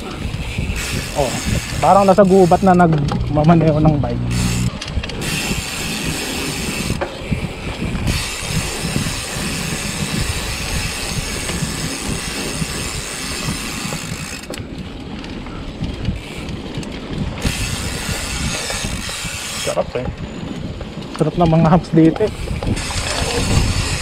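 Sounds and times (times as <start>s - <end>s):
mountain bike rattling on dirt trail: 0.0s - 24.0s.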